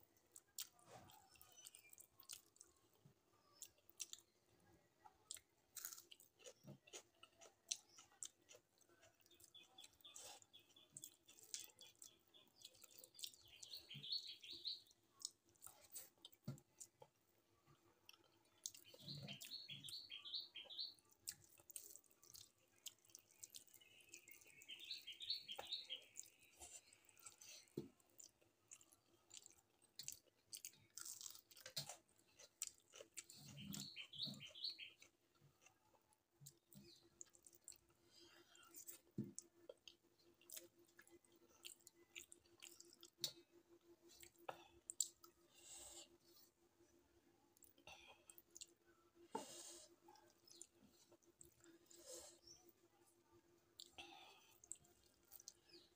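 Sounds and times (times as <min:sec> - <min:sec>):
chewing: 0:00.0 - 0:14.0, 0:14.7 - 0:20.0, 0:20.7 - 0:46.6, 0:47.5 - 0:52.8, 0:53.7 - 0:55.9
bird chirping: 0:09.2 - 0:15.0, 0:18.6 - 0:21.1, 0:23.4 - 0:26.8, 0:33.2 - 0:35.1.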